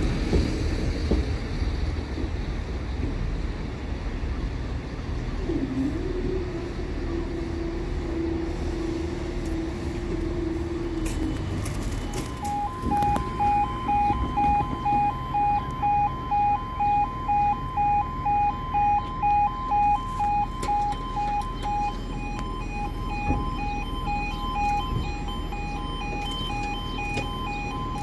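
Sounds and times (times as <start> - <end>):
street noise: 0.0 - 28.0
two-tone crossing alarm: 9.4 - 28.0.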